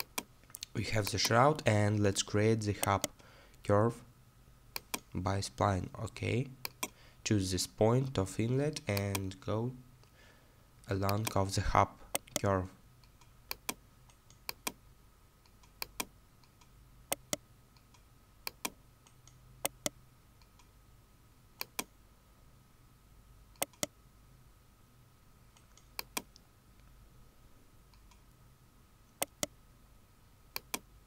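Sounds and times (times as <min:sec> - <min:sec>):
computer mouse button clicking: 0:15.6 - 0:18.8, 0:19.6 - 0:20.7, 0:23.6 - 0:23.9, 0:30.6 - 0:30.9.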